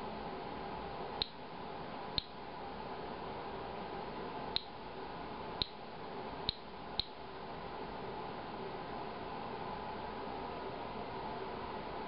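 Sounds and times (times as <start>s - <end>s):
faint steady hiss: 0.0s - 12.0s
geiger counter clicking: 4.6s - 4.8s, 6.5s - 7.2s.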